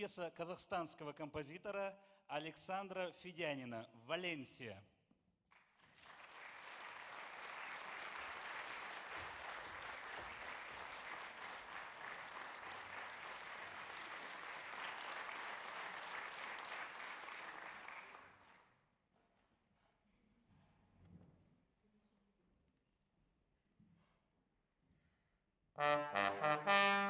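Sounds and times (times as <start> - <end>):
audience applauding: 5.5 - 18.6.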